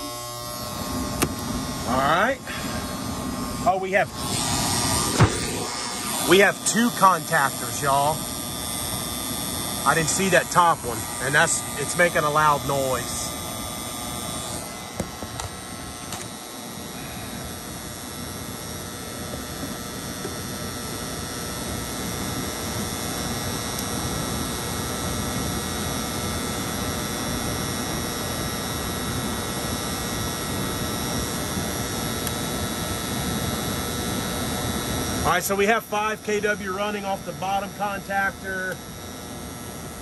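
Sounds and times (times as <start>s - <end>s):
contactor buzzing: 0.0s - 40.0s.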